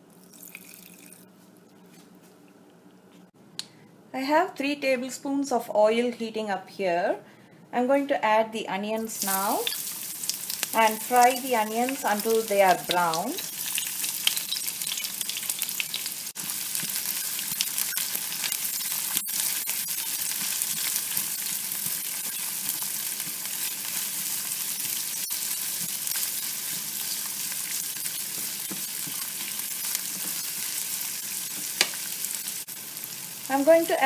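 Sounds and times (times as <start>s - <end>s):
onions sizzling in oil: 9.0s - 34.0s
spatula stirring in pan: 12.2s - 32.4s.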